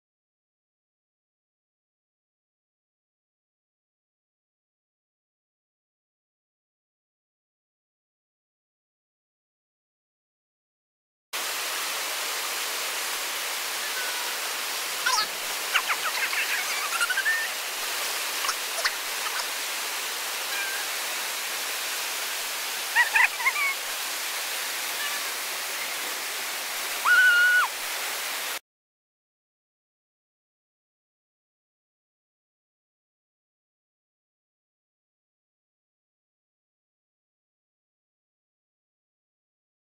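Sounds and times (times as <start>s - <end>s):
whitewater rushing: 11.4s - 28.6s
high-pitched calls: 15.0s - 17.6s, 20.4s - 21.0s, 27.0s - 27.7s.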